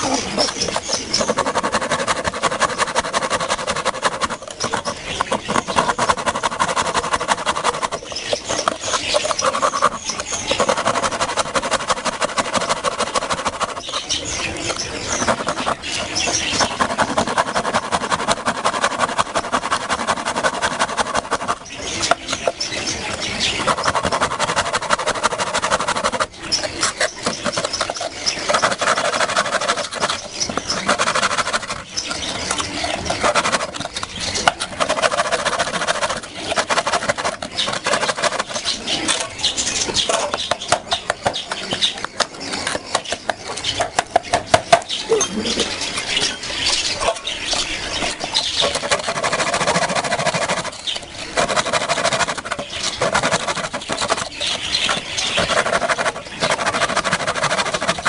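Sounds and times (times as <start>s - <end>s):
hand saw cutting a log: 0.0s - 39.2s, 48.6s - 58.0s.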